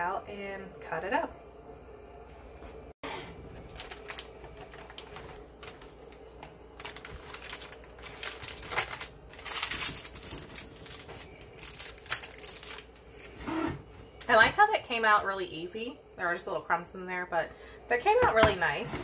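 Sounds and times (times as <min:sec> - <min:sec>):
parchment paper crinkling: 0:03.5 - 0:13.4.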